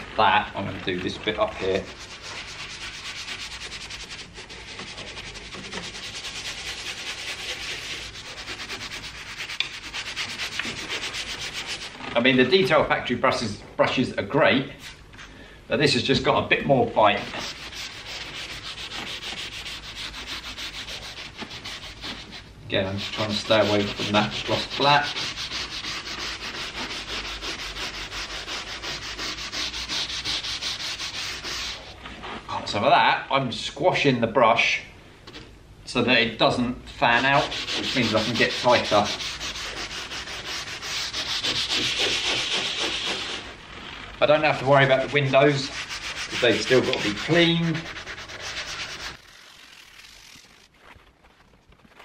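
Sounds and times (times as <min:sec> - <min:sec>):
brush scrubbing door panel: 0:00.8 - 0:12.2, 0:17.0 - 0:32.4, 0:37.0 - 0:50.6.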